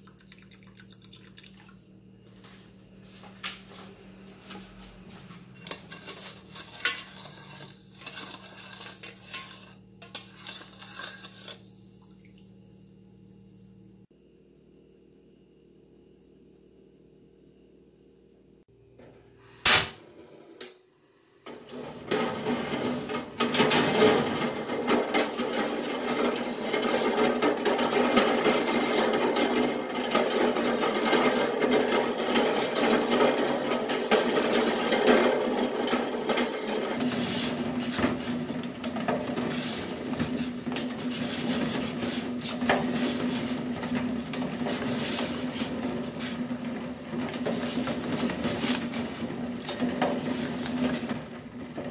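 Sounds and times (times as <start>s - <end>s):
gas burner and heating water: 0.0s - 14.1s, 19.4s - 51.9s
spoon scraping a metal pot: 5.5s - 11.8s.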